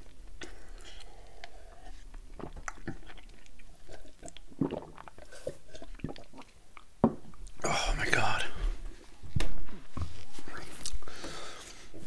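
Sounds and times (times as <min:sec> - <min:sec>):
man gulping a drink: 0:00.0 - 0:08.6
wet mouth clicks: 0:00.4 - 0:07.6.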